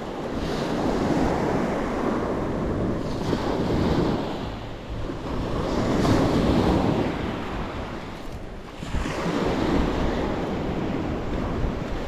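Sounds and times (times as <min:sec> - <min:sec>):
sea waves breaking on shore: 0:00.0 - 0:12.0
wind buffeting microphone: 0:00.0 - 0:12.0.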